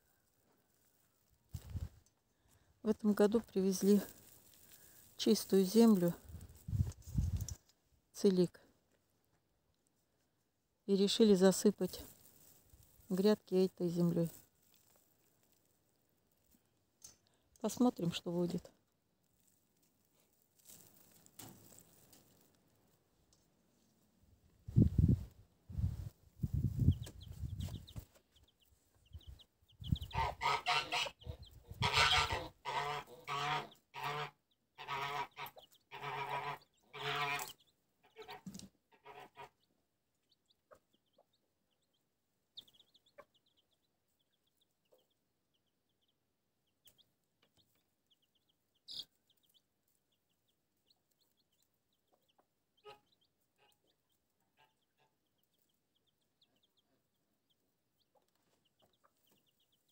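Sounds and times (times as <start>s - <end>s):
chicks peeping faintly: 0.0s - 8.7s, 9.3s - 59.9s
fowl calling loudly: 30.1s - 39.6s.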